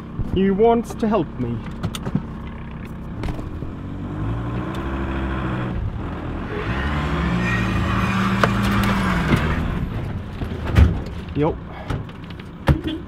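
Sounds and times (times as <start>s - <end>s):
engine revving hard: 3.5s - 9.9s.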